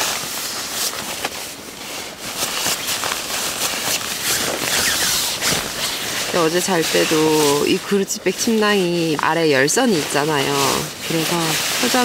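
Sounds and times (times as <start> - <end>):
fabric rustling and crinkling: 0.0 - 12.0.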